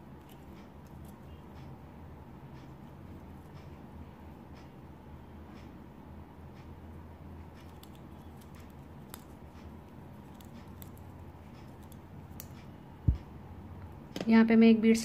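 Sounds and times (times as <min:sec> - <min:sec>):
steady low hum: 0:00.0 - 0:15.0
shuttle and thread clicking: 0:07.4 - 0:13.3.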